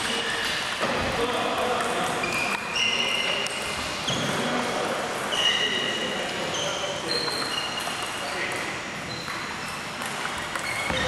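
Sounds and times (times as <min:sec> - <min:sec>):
shoes squeaking on floor: 0:00.0 - 0:00.9, 0:02.1 - 0:11.0
table tennis balls clicking: 0:09.2 - 0:11.0.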